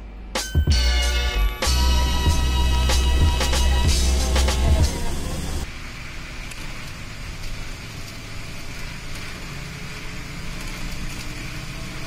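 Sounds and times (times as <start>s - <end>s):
bus engine hum: 0.0s - 12.0s
tyres hissing on wet road: 3.0s - 12.0s.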